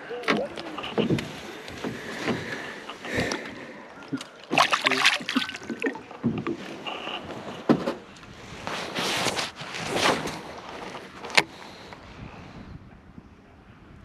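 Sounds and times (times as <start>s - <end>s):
water splash: 4.4s - 6.2s.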